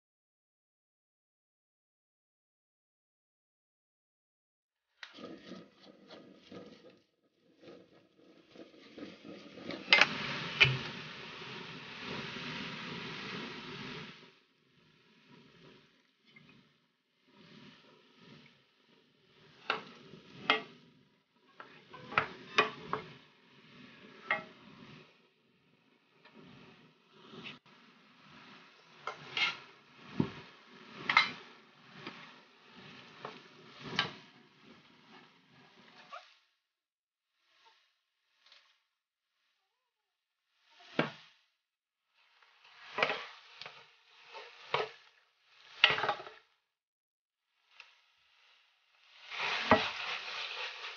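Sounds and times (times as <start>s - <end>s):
wooden spatula scraping pan: 5.0s - 36.5s, 42.4s - 46.5s, 49.0s - 50.9s
meat sizzling: 7.5s - 25.1s, 26.6s - 36.4s, 42.3s - 46.4s, 47.6s - 50.9s.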